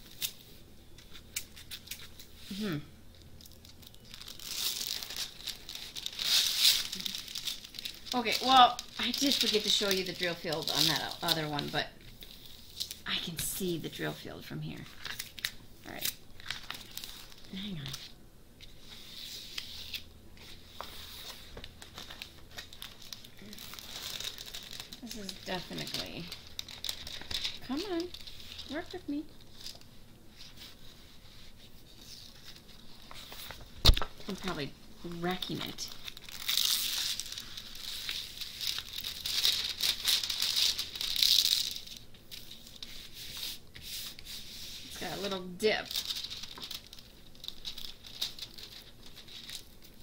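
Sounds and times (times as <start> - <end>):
plastic film crinkling: 0.0 - 50.0
canvas sheet rustling and crinkling: 30.4 - 50.0.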